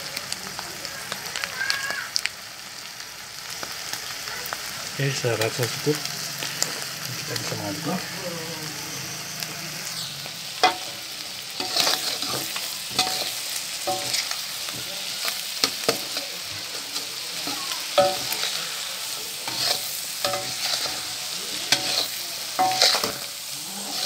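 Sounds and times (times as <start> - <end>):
food sizzling in oil: 0.0 - 24.0
metal spatula scraping a wok: 9.8 - 24.0.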